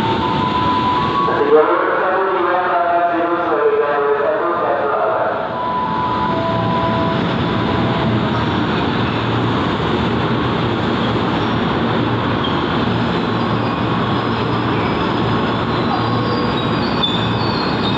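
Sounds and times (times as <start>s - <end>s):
train wheels rumbling on rails: 5.4s - 17.9s
faint high wheel squeal: 13.4s - 17.9s.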